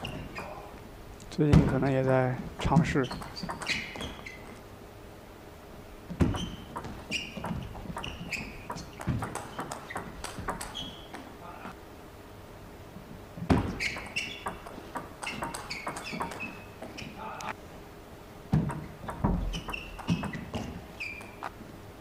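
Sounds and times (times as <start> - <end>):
shoes squeaking on floor: 0.0 - 0.7, 1.5 - 4.6, 6.1 - 11.8, 13.4 - 17.6, 18.5 - 21.6
ping pong ball clicking: 6.7 - 10.8.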